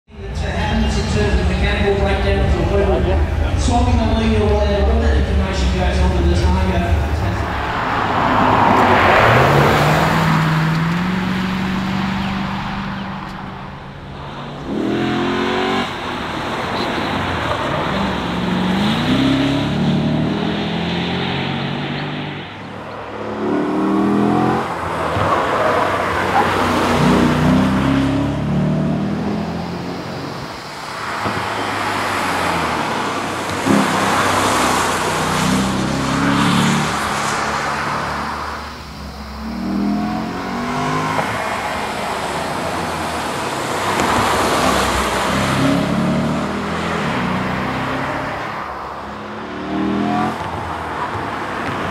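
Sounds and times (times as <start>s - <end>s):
tyre and road noise: 0.1s - 51.9s
car engine accelerating past: 0.9s - 13.6s.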